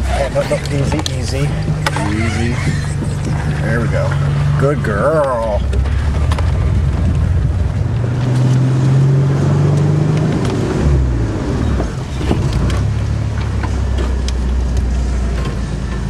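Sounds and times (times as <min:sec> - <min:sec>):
off-road vehicle engine pulling: 0:00.0 - 0:16.0.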